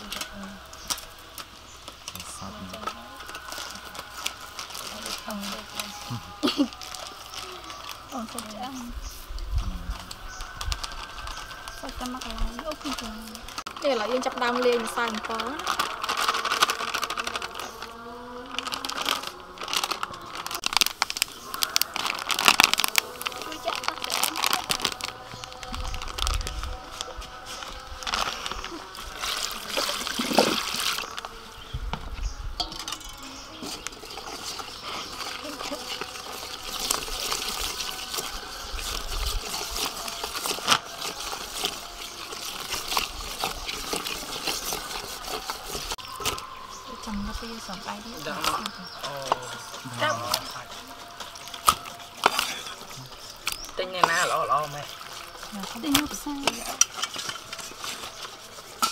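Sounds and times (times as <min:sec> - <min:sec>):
plastic packet crinkling: 0:00.0 - 0:31.7, 0:32.6 - 0:58.9
wet batter stirring: 0:26.8 - 0:31.6, 0:32.6 - 0:46.5, 0:47.4 - 0:58.9.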